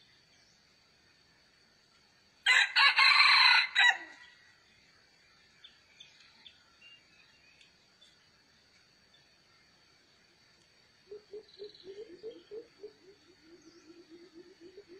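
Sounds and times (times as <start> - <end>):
rooster crowing: 2.4 - 4.4.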